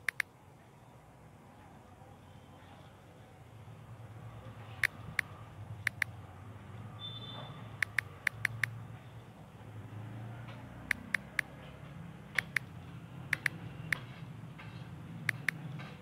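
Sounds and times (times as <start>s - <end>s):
phone keyboard key clicks: 0.0s - 0.3s, 4.8s - 6.1s, 7.8s - 8.8s, 10.9s - 11.5s, 12.4s - 12.7s, 13.3s - 14.0s, 15.3s - 15.6s.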